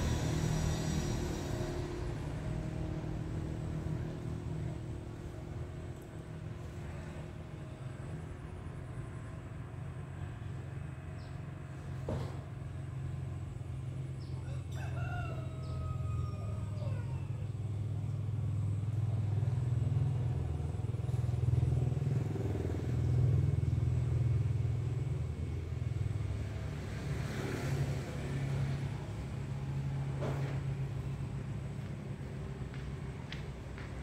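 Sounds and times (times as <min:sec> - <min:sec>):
low hum: 0:00.0 - 0:12.0
rooster crowing: 0:14.3 - 0:17.6.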